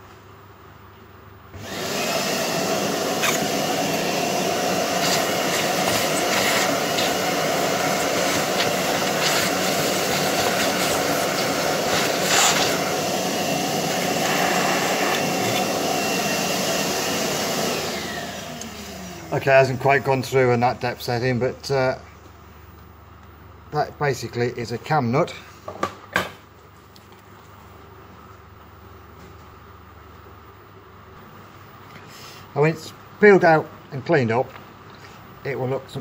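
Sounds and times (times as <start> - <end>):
vacuum cleaner running: 1.5 - 21.6.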